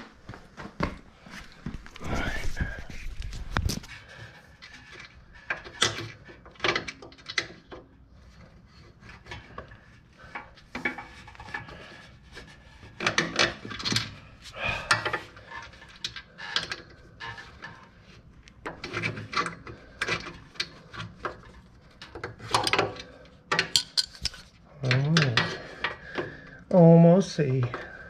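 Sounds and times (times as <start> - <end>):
pliers clicking and scraping metal: 23.6 - 25.4.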